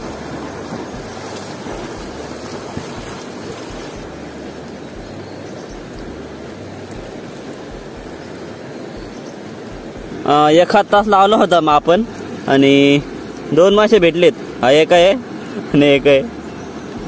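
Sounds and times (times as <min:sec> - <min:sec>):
wind buffeting microphone: 0:00.0 - 0:11.1
river water rushing: 0:00.0 - 0:17.0.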